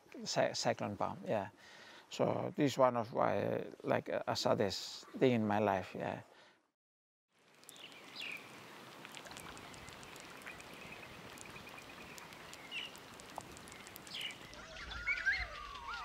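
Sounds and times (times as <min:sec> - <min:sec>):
steady hiss: 0:07.5 - 0:14.6
small clicks: 0:07.6 - 0:08.3, 0:09.0 - 0:14.7
bird chirps: 0:07.6 - 0:08.5, 0:09.3 - 0:16.0
bird warbling calls: 0:09.3 - 0:16.0.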